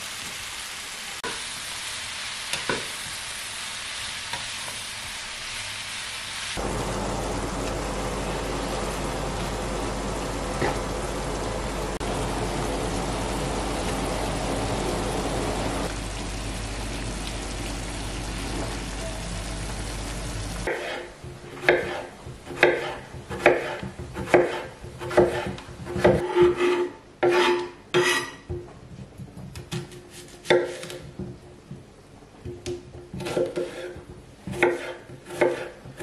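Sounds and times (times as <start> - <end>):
mushrooms sizzling in a frying pan: 0.0 - 24.2
knife slicing cucumber on board: 20.7 - 28.2, 33.2 - 36.0.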